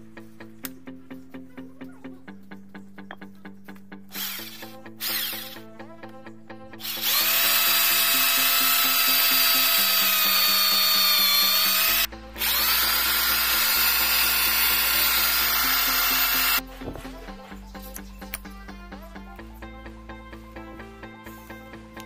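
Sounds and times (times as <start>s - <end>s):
hammer drill boring into brick: 4.2s - 5.6s, 6.8s - 16.6s.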